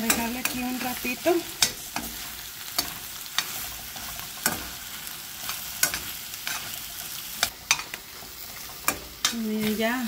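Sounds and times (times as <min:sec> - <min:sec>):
pan sizzling: 0:00.0 - 0:10.0
spoon stirring in skillet: 0:00.0 - 0:10.0.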